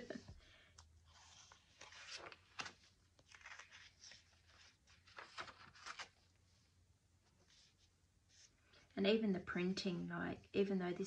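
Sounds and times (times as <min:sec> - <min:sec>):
paper pages rustling: 0:00.8 - 0:06.6.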